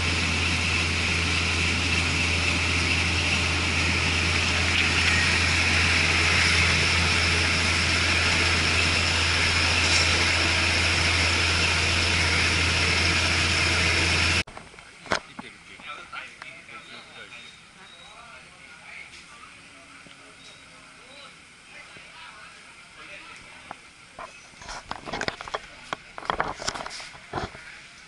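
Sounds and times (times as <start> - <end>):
train running noise: 0.0 - 14.5.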